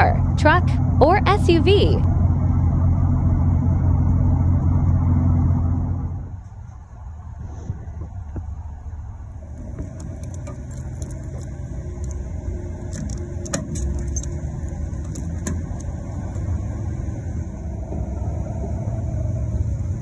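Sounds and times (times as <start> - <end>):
engine idling: 0.0 - 20.0
fuel cap clicks and rattles: 9.6 - 12.2, 12.8 - 16.5.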